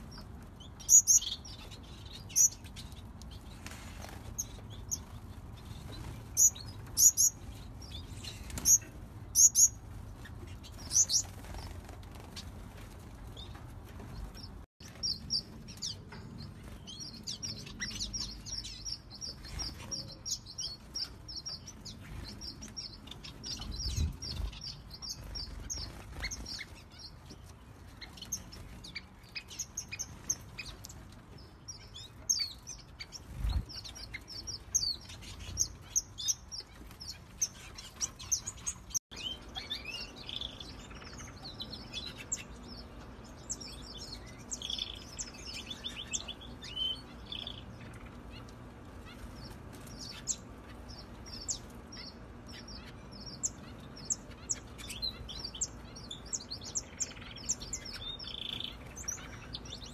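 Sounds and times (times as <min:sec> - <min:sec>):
finches chirping: 0:00.0 - 0:09.8, 0:31.7 - 0:59.9.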